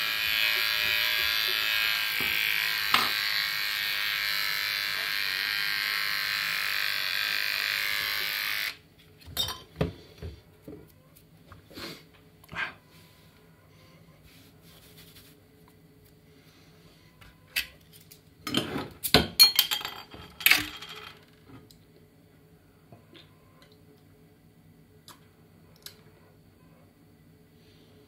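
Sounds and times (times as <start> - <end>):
glass bottle clinks and knocks: 19.2 - 20.1.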